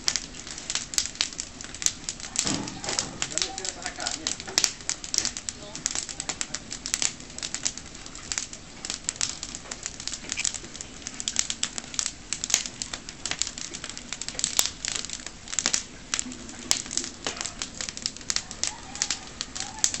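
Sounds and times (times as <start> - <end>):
firewood crackling and popping: 0.0 - 20.0.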